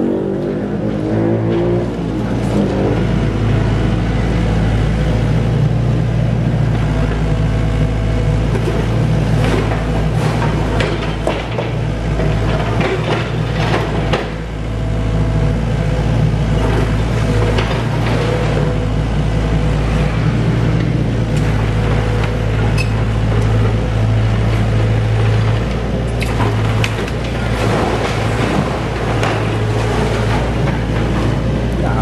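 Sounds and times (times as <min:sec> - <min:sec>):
excavator diesel engine: 0:00.0 - 0:32.0
breaking masonry clatter: 0:08.4 - 0:14.5, 0:21.4 - 0:32.0.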